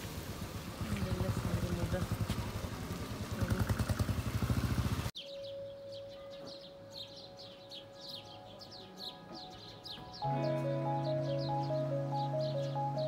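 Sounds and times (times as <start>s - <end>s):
birds chirping: 4.8s - 13.0s.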